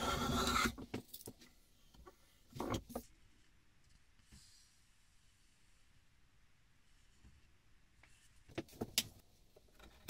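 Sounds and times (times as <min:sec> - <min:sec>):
soft rustle: 0:06.8 - 0:08.5.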